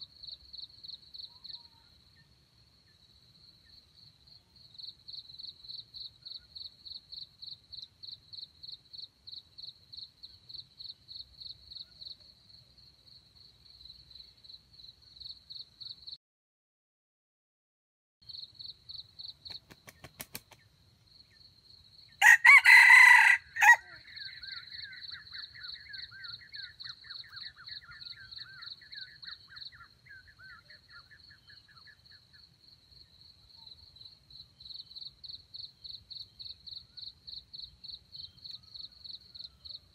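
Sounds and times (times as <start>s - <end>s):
crickets chirping: 0.0s - 16.2s, 18.2s - 39.9s
wings flapping: 19.5s - 20.6s
rooster crowing: 22.2s - 24.1s.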